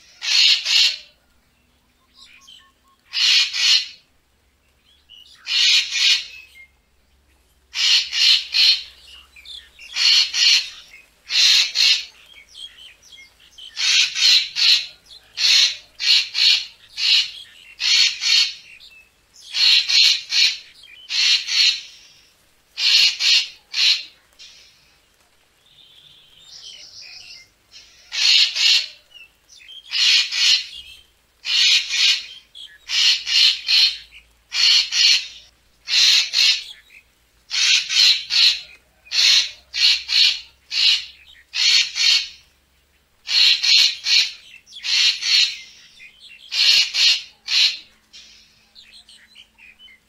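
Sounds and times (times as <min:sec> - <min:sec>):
bird giving harsh grating calls: 0:00.0 - 0:01.1, 0:03.1 - 0:04.0, 0:05.4 - 0:06.4, 0:07.7 - 0:08.9, 0:09.9 - 0:12.1, 0:13.7 - 0:18.7, 0:19.5 - 0:22.0, 0:22.8 - 0:24.6, 0:27.8 - 0:29.0, 0:29.9 - 0:30.8, 0:31.4 - 0:36.7, 0:37.5 - 0:42.4, 0:43.3 - 0:45.8, 0:46.4 - 0:48.6.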